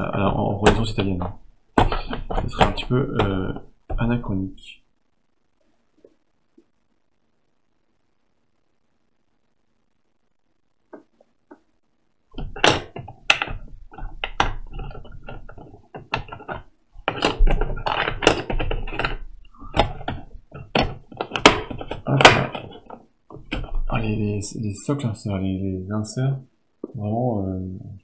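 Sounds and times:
plastic miniatures clicking and rattling: 12.4 - 24.0.

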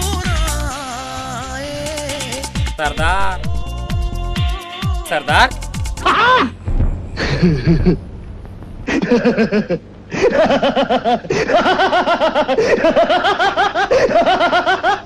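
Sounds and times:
loud human laughter: 8.9 - 15.0.

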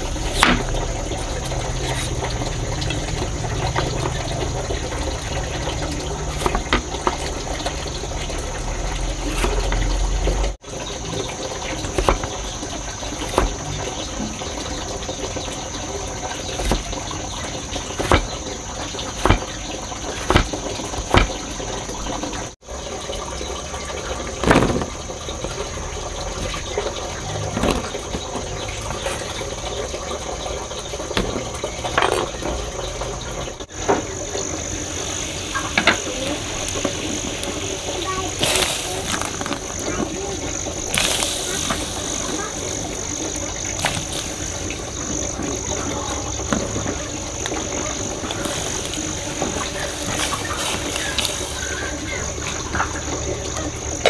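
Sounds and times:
cleaver chopping on wooden board: 13.2 - 13.6, 18.0 - 18.4, 19.2 - 21.4.

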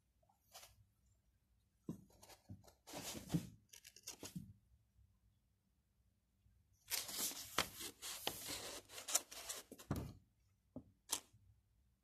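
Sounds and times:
paper leaflet rustling and crinkling: 6.9 - 10.0.

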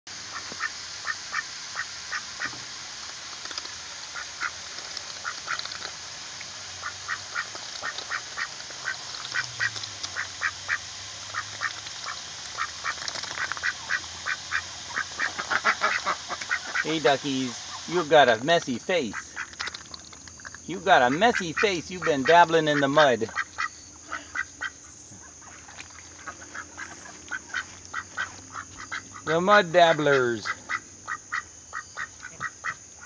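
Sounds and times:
ducks dabbling in mud: 0.3 - 32.8
ducks quacking: 6.8 - 19.9, 20.7 - 32.9.

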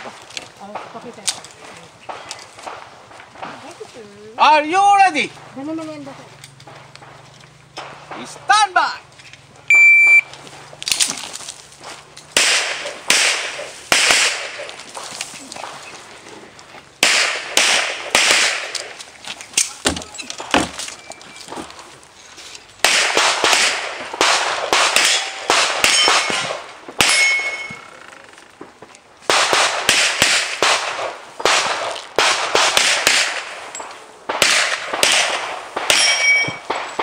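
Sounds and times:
handgun shots: 12.3 - 14.8, 17.0 - 19.0, 22.8 - 27.7, 29.3 - 33.6, 34.3 - 37.0
steel targets clanging: 25.0 - 27.9, 35.8 - 37.0.

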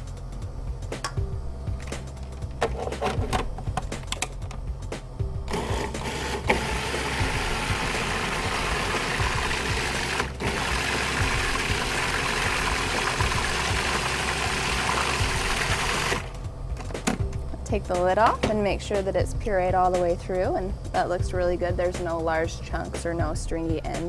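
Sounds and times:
food processor whirring: 5.5 - 16.4.

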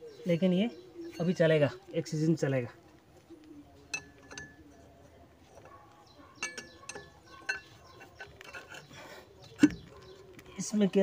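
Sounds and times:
wrench clinking on metal: 3.9 - 4.6, 6.4 - 8.9.

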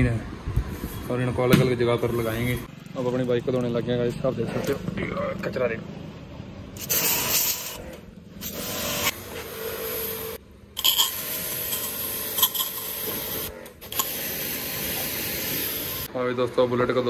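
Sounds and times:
pressure washer jet hissing: 6.8 - 7.8, 11.2 - 16.1.

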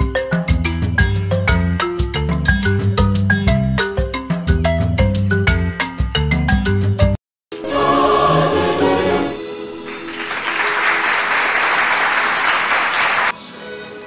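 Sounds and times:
choir singing a chord: 7.6 - 10.2
applause: 9.9 - 13.4.

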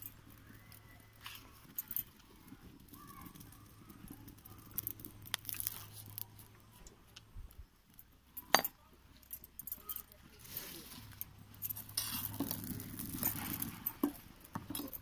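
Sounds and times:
oil crackling in hot pan: 4.0 - 6.4.

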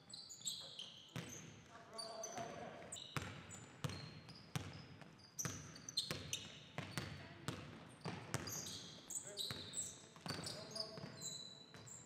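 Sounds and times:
sneakers squeaking on floor: 0.0 - 12.0
basketball bouncing on wood floor: 3.2 - 4.8, 5.4 - 8.6.

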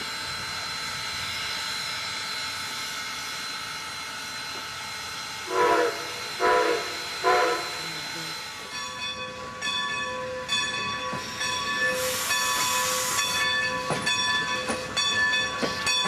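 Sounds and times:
steam engine hissing: 0.0 - 16.0
steam whistle blasts: 5.5 - 7.9.

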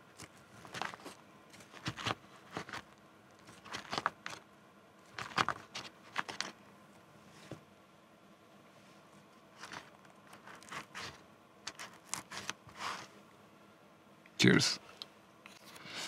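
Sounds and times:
plastic fork scraping noodles: 0.2 - 4.4, 9.6 - 13.1.

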